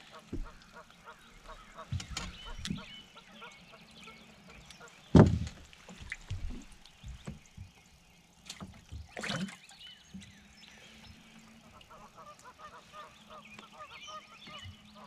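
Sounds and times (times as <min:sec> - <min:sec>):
distant geese honking: 0:00.0 - 0:05.1, 0:11.2 - 0:15.0
knocks and footfalls on boat deck: 0:00.2 - 0:00.8, 0:01.4 - 0:02.9, 0:05.1 - 0:07.9.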